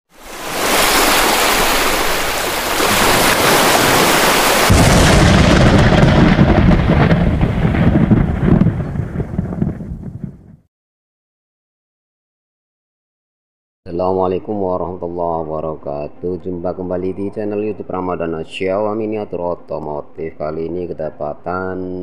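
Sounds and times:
deep explosion boom: 4.7 - 10.6.

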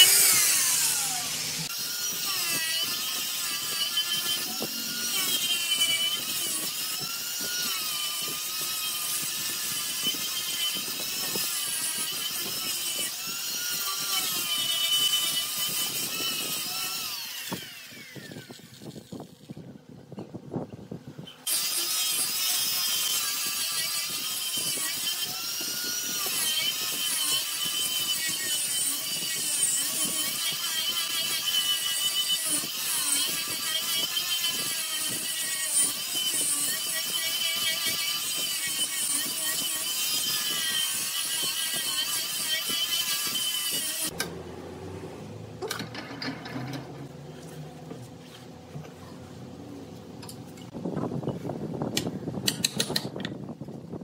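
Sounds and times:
angle grinder sanding wood: 0.0 - 19.3, 21.5 - 44.2.

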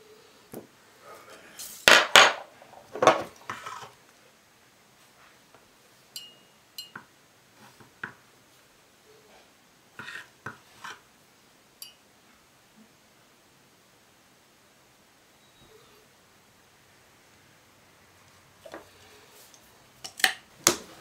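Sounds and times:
rustling scrapes: 2.7 - 4.0, 9.3 - 11.0.

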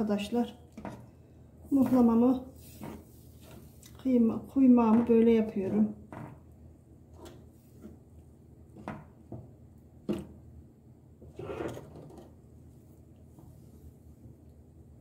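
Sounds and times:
wooden spoon stirring batter: 0.1 - 10.5
spoon scraping pan: 1.7 - 3.8.

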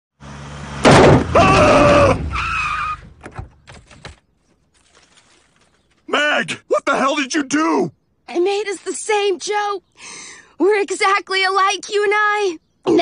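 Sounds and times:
car engine: 0.2 - 4.0
tyres screeching: 1.0 - 4.1.

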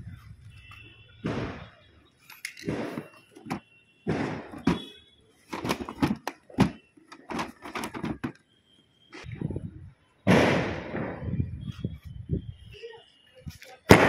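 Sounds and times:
short thuds and pops: 2.6 - 8.4.

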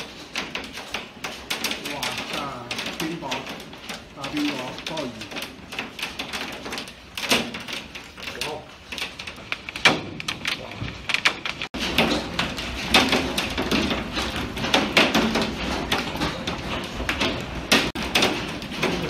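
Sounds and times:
hail clattering on window glass: 0.0 - 19.0.

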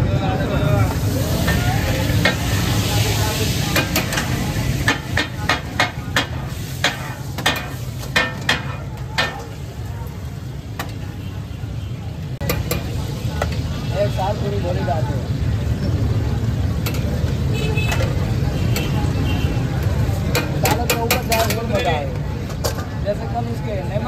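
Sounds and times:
frying sizzle: 0.0 - 24.0
metal ladle scraping iron pan: 3.5 - 9.6.

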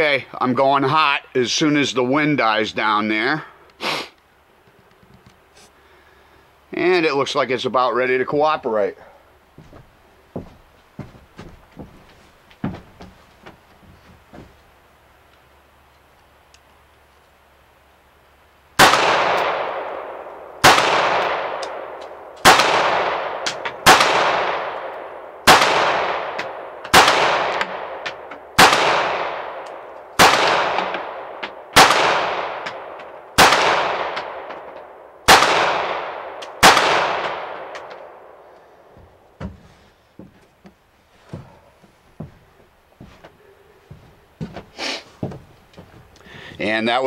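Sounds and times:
pistol shots with echo: 18.8 - 38.4.

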